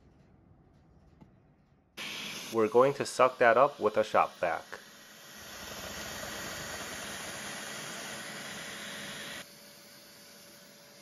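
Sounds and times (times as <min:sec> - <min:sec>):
shop vac running: 0:02.0 - 0:11.0.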